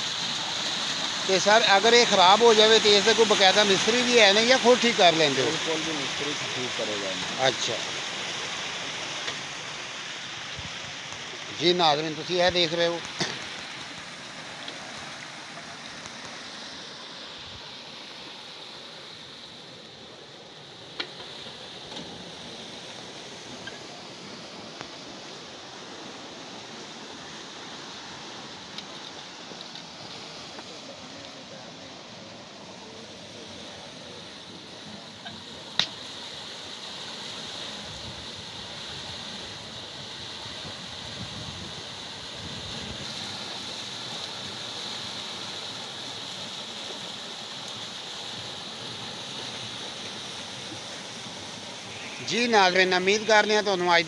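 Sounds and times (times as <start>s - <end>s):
water wheel running: 0.0s - 10.5s, 11.3s - 17.0s, 28.0s - 54.0s
water pouring from buckets: 0.0s - 16.7s.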